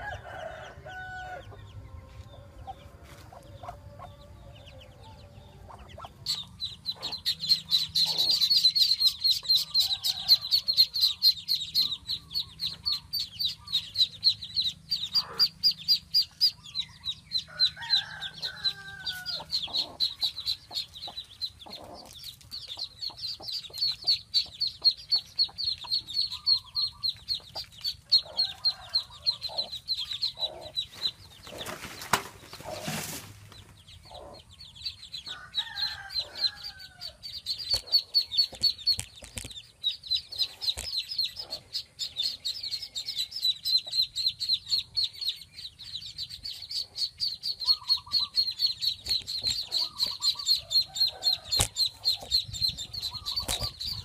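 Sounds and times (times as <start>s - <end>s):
ducklings peeping: 0.0s - 54.0s
hen clucking: 0.0s - 54.0s.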